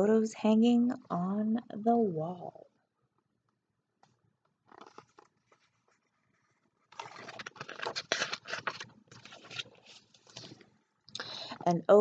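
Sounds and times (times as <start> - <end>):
book pages rustling: 4.6 - 10.8.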